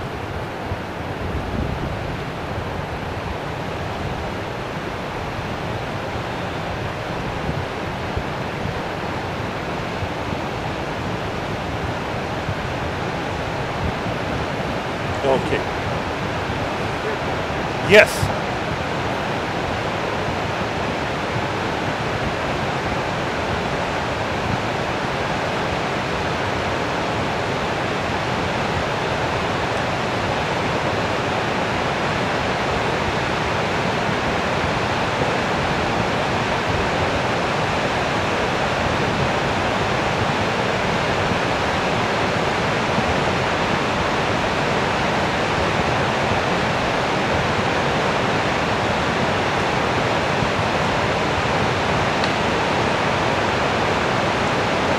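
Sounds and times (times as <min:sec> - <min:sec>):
flood water rushing: 0:00.0 - 0:54.9.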